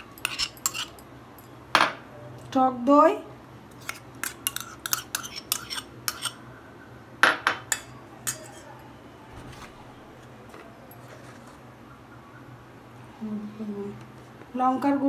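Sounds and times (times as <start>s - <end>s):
metal spoon clinking on bowl: 0.0s - 2.0s, 3.8s - 6.4s, 7.2s - 8.7s.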